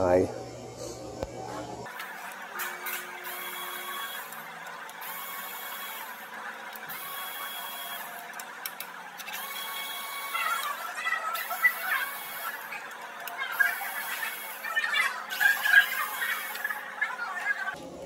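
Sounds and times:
cordless power tool whining: 0:01.9 - 0:14.6.

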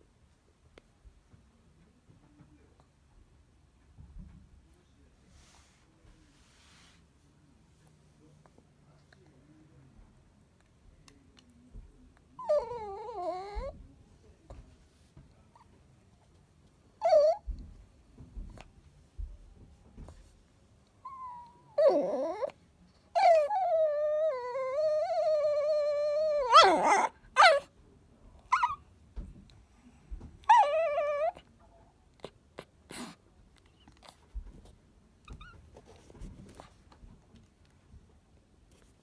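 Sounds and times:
small dog whining and yipping: 0:12.4 - 0:13.8, 0:17.0 - 0:17.4, 0:21.0 - 0:27.7, 0:28.5 - 0:28.8, 0:30.4 - 0:31.4, 0:35.2 - 0:35.6.

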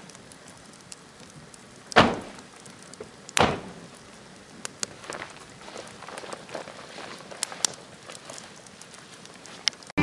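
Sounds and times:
campfire crackling: 0:00.0 - 0:10.0
loud sharp snap of wood: 0:01.9 - 0:02.4, 0:03.3 - 0:03.8.

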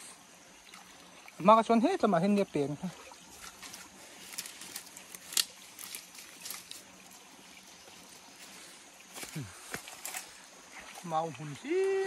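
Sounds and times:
stream trickling over rocks: 0:00.0 - 0:12.0
dry leaves rustling: 0:03.4 - 0:07.2.

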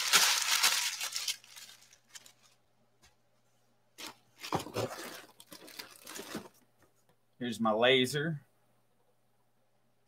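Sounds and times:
packaging scraping and rustling: 0:00.0 - 0:02.6, 0:04.0 - 0:06.6
packaging knocks and rustles: 0:04.0 - 0:06.6.

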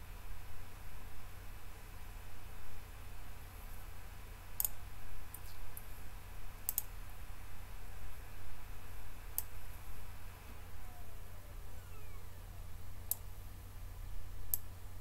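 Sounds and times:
steady low hum: 0:00.0 - 0:15.0
computer mouse clicking: 0:04.6 - 0:05.9, 0:06.6 - 0:06.9.

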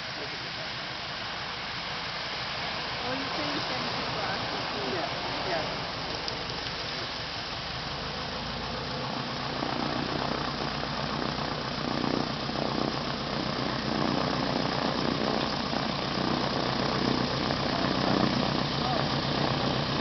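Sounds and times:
floatplane piston engine: 0:00.0 - 0:20.0.

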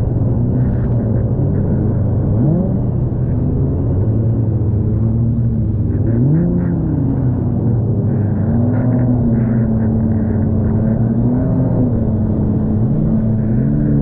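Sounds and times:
jet ski engine revving: 0:00.0 - 0:14.0.

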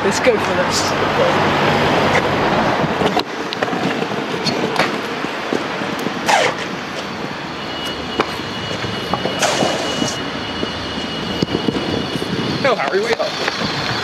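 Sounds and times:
thin high whine: 0:00.0 - 0:14.0
scooter wheels rolling over paving: 0:02.0 - 0:10.2.

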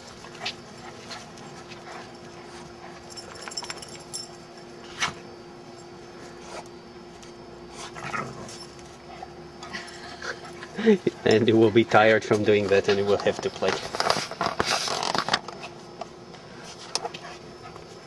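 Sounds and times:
dogs scuffling: 0:09.9 - 0:15.9.

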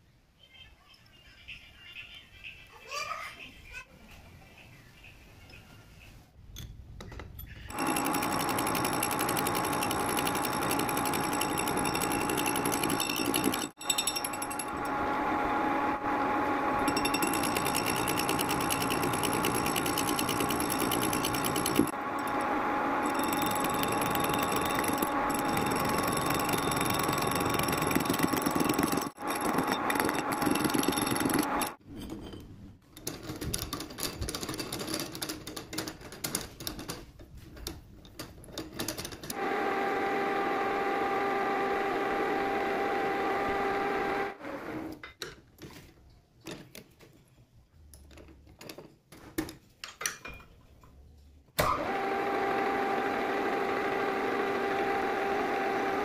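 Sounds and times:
metal lathe humming and whining: 0:07.7 - 0:31.8.

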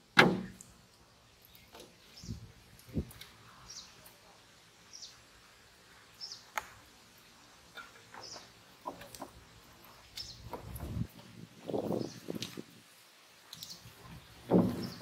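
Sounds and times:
clicks and knocks in wooden boat: 0:00.2 - 0:00.6, 0:08.2 - 0:09.4, 0:14.4 - 0:15.0
small bird chirping: 0:01.2 - 0:04.2, 0:08.1 - 0:08.6, 0:09.8 - 0:10.6.

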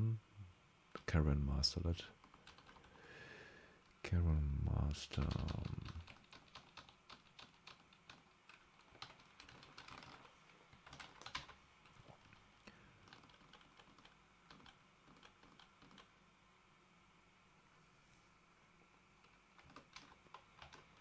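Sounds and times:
typing on a computer keyboard: 0:02.2 - 0:03.0, 0:05.1 - 0:12.4, 0:13.0 - 0:16.1, 0:19.2 - 0:21.0.

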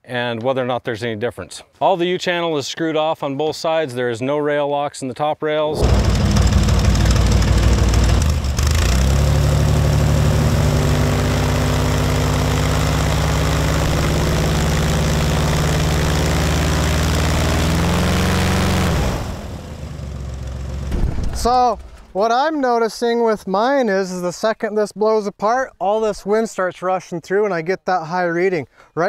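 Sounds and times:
airboat engine drone: 0:05.7 - 0:20.7
propeller wind rush: 0:05.8 - 0:17.7.

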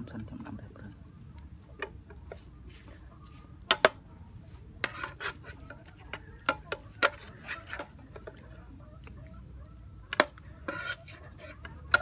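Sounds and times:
metal spoon clinking and scraping: 0:04.8 - 0:08.6, 0:10.1 - 0:12.0.

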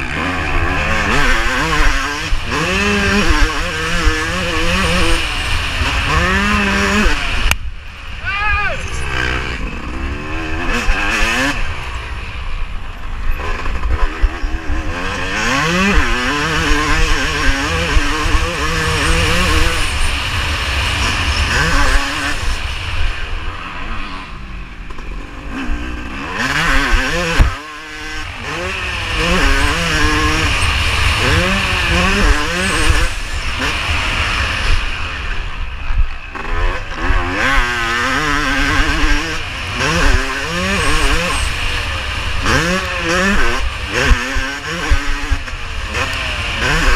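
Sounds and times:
motocross engine revving: 0:00.0 - 0:46.9.

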